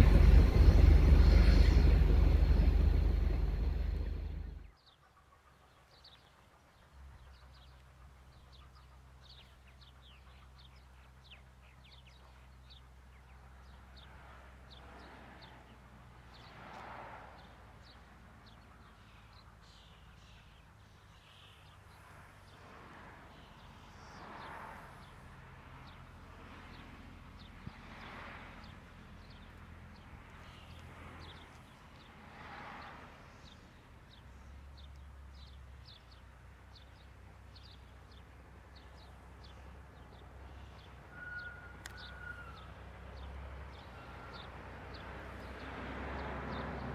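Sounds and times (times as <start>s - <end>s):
soft rushing swell: 0.0s - 4.6s
faint low hum: 0.0s - 4.7s
small birds chirping: 0.0s - 14.1s, 17.4s - 22.7s, 23.3s - 26.1s, 26.7s - 32.2s, 33.2s - 46.9s.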